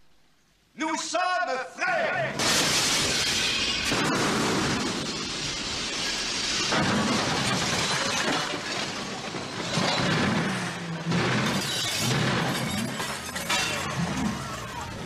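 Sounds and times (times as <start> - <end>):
things crashing and breaking: 2.3 - 15.0
glass shattering: 2.4 - 14.5.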